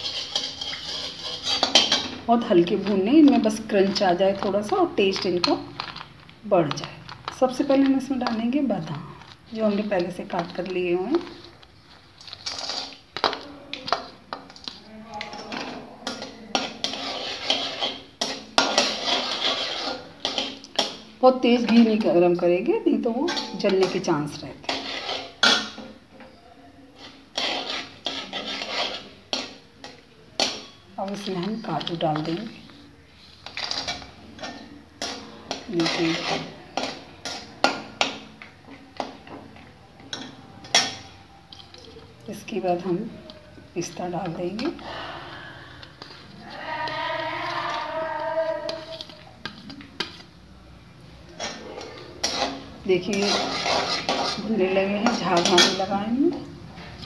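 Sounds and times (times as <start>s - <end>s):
nuts frying in oil: 0.0s - 26.0s, 27.0s - 57.0s
metal spatula scraping a pan: 0.0s - 50.4s, 51.2s - 57.0s.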